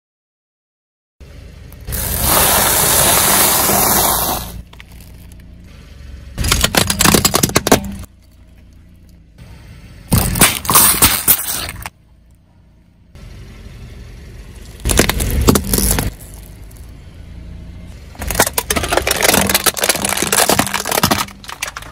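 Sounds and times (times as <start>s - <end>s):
car engine running low: 1.2s - 21.9s
plastic balls cracking and crunching: 6.4s - 8.1s, 14.8s - 16.9s, 18.1s - 21.9s.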